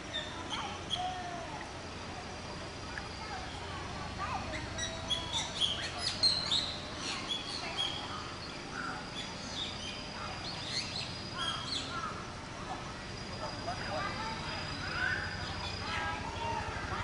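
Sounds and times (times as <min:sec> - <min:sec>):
birds chirping and calling: 0:00.0 - 0:01.2, 0:04.3 - 0:12.4, 0:13.2 - 0:17.0
thin steady high tone: 0:00.0 - 0:17.0.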